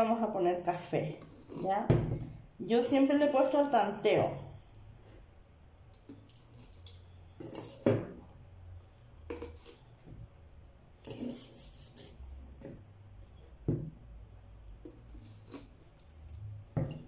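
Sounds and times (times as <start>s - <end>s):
knife scraping plastic bottle: 11.0s - 12.3s.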